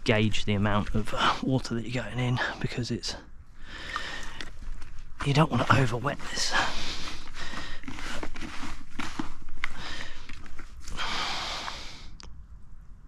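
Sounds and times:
hands squelching damp bait: 0:03.8 - 0:05.9
bucket dipped in water: 0:03.8 - 0:10.5.

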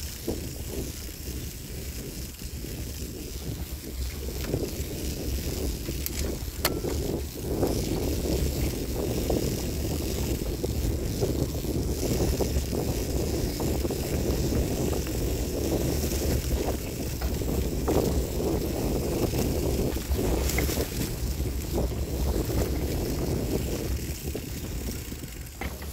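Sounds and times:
tyres rumbling over rough ground: 0:00.0 - 0:25.9
wind buffeting microphone: 0:00.0 - 0:25.9.

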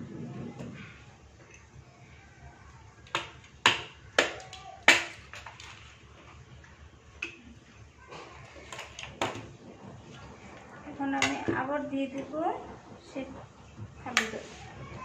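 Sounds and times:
plastic ice tray cracking: 0:04.2 - 0:06.0.

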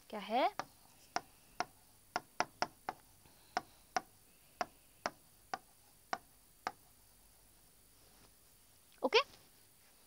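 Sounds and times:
pen tapping on writing board: 0:00.5 - 0:06.8.

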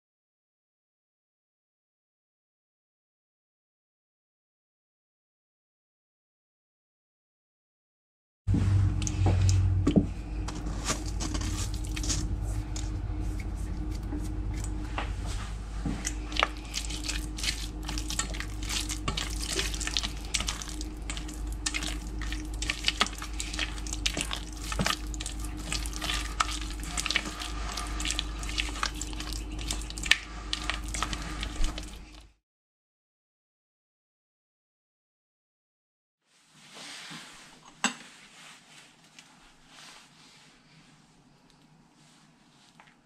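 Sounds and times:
steady low hum: 0:08.5 - 0:32.4
spatula scraping metal bowl: 0:10.4 - 0:15.3, 0:16.0 - 0:32.0.

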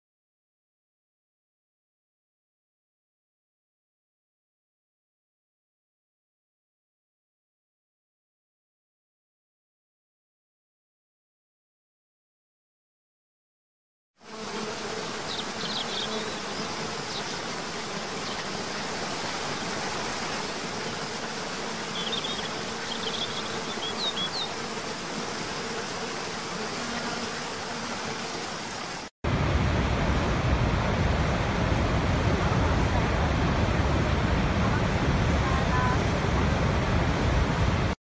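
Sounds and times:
bird chirps: 0:15.3 - 0:17.4, 0:21.9 - 0:24.5
huge waterfall deep rush: 0:29.3 - 0:38.0.

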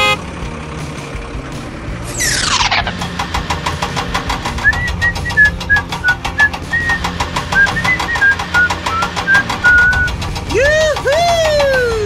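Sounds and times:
toy winch mechanical clicking: 0:02.2 - 0:12.0.

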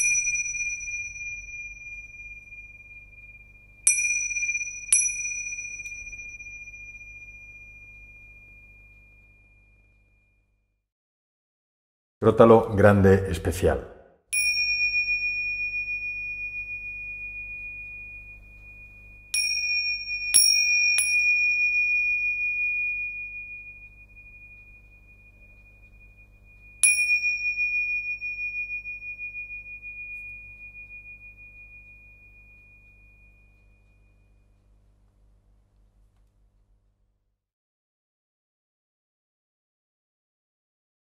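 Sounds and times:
hand cymbals ringing: 0:00.0 - 0:09.9, 0:14.4 - 0:34.8.

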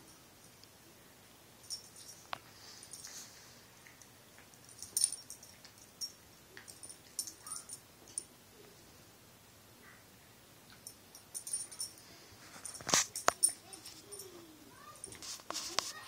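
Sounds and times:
collar tags jingling: 0:01.6 - 0:03.3, 0:04.5 - 0:08.3, 0:10.8 - 0:15.7.

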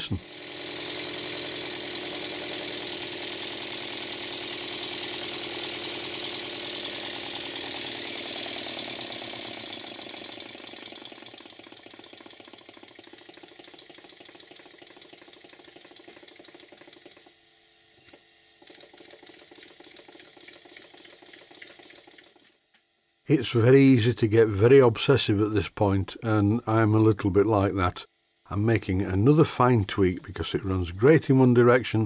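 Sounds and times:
model steam engine running: 0:00.0 - 0:17.4, 0:18.5 - 0:22.6.

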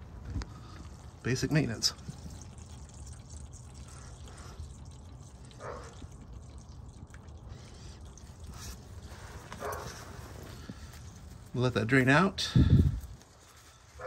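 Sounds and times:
oil pouring into a pan: 0:00.0 - 0:09.2.

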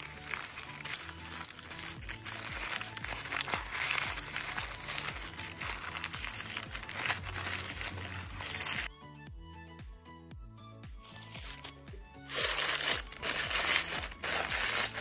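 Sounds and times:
paper crinkling and rustling: 0:00.0 - 0:08.9, 0:11.0 - 0:15.0
background music with beat: 0:04.1 - 0:15.0.

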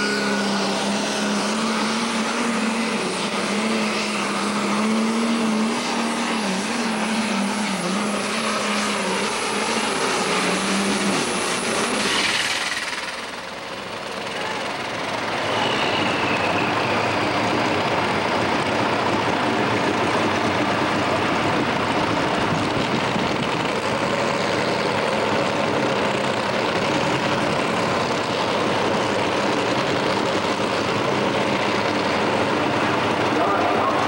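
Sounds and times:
diesel engine idling: 0:12.6 - 0:34.0.

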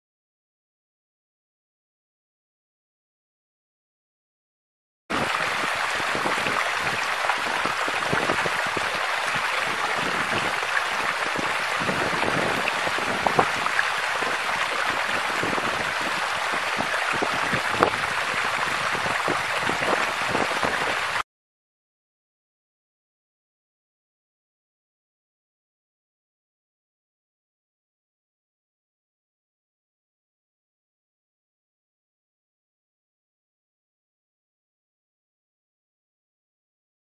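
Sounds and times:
running water hiss: 0:05.1 - 0:21.2
small water drips: 0:05.1 - 0:21.2.

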